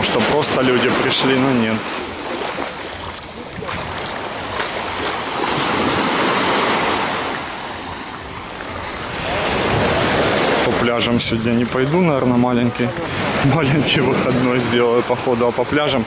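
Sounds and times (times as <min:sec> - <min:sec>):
waves breaking on beach: 0:00.0 - 0:16.0
wind on microphone: 0:01.9 - 0:14.7.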